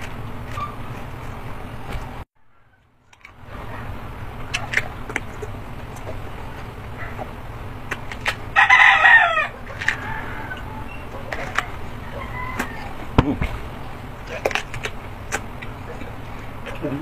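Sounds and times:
biting and chewing fruit: 0.0s - 17.0s
rooster crowing: 8.5s - 13.2s.

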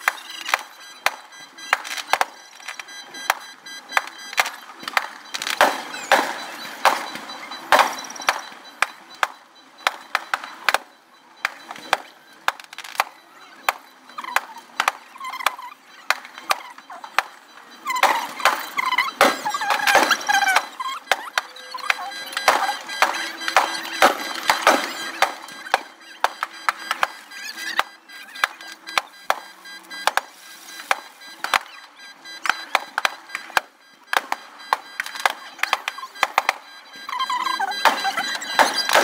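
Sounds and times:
fireworks bangs and crackles: 4.0s - 13.8s, 22.3s - 27.3s, 37.8s - 39.0s.

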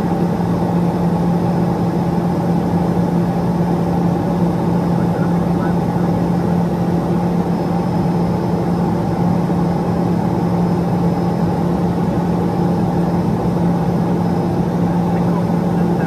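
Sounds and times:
turboprop engine drone: 0.0s - 16.0s.

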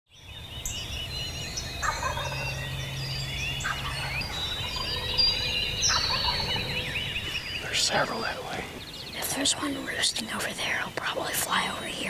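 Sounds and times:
songbirds chirping and trilling: 0.1s - 12.0s
wild turkey gobbling: 1.8s - 2.6s, 3.6s - 8.8s.

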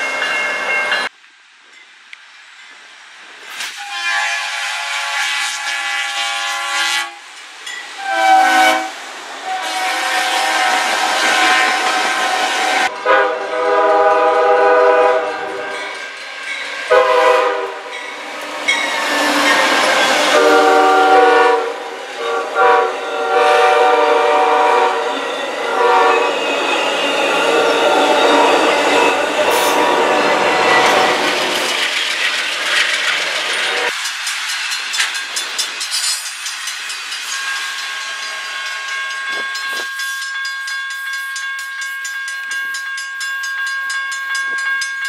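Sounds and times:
train rumble and wheel clatter: 0.0s - 45.0s
locomotive air horn blasts: 3.8s - 7.3s, 8.0s - 15.6s, 16.9s - 18.0s, 20.2s - 26.4s.

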